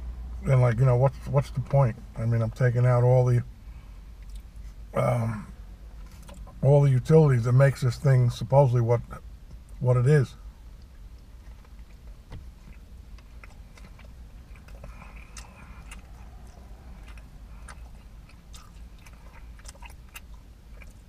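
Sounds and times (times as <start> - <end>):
steady low rumble: 0.0 - 21.0
man chewing with wet mouth smacks: 4.2 - 4.8, 10.7 - 21.0.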